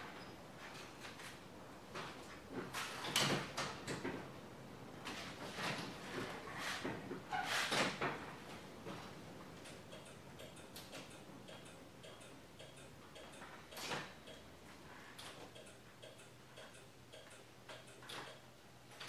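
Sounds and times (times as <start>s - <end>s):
turn signal flasher ticking: 9.6s - 13.5s.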